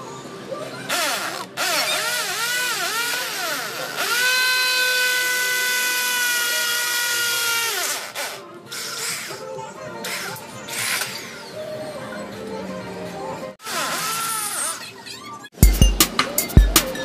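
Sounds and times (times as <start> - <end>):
electric drill drilling metal: 0.9 - 9.4, 13.6 - 14.8.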